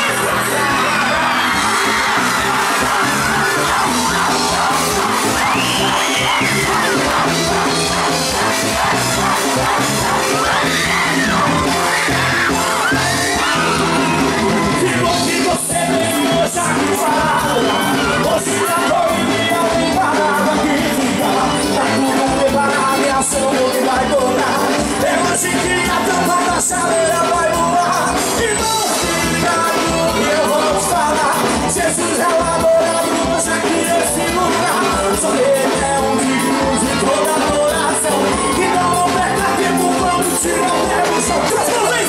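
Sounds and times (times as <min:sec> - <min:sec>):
live gospel band through pa: 0:00.0 - 0:42.0
man singing lead: 0:00.0 - 0:42.0.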